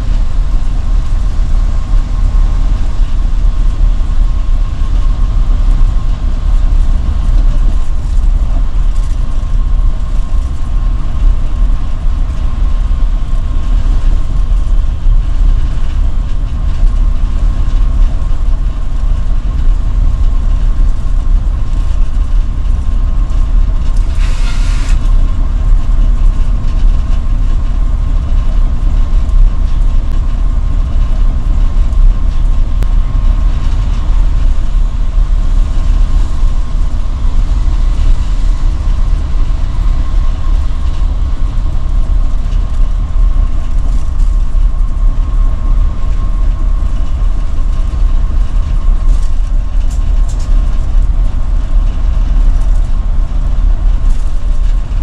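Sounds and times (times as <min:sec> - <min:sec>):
bus engine rumbling: 0:00.0 - 0:55.0
faint steady whine: 0:00.0 - 0:55.0
tyres on road: 0:00.0 - 0:55.0
short hiss: 0:24.0 - 0:25.1.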